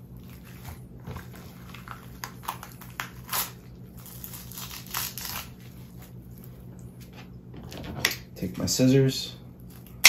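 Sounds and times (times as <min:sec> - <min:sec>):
fish flesh tearing: 0:00.1 - 0:06.5.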